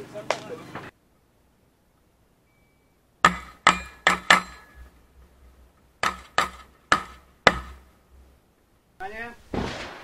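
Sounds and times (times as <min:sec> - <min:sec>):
metallic ring: 0:02.4 - 0:05.0
shotgun shots: 0:09.5 - 0:10.0.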